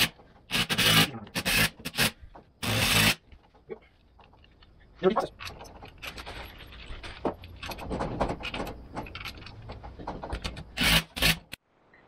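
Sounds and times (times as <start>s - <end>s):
bolts clattering: 3.3s - 11.0s
metal bolts clicking and rattling: 5.2s - 11.0s.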